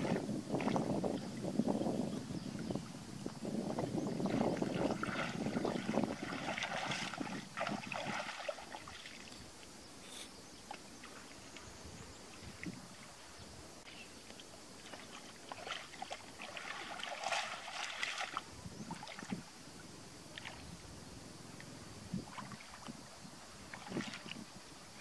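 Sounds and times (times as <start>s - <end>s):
muddy water splashing: 4.1s - 9.6s, 14.3s - 19.5s, 20.3s - 20.8s, 22.2s - 25.0s.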